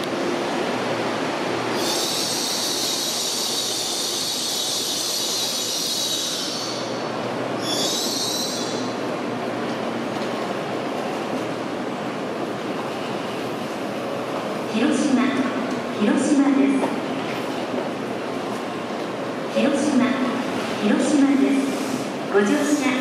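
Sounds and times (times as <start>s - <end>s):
rumble of slowing train: 0.0s - 23.0s
train brakes squealing: 1.7s - 9.0s.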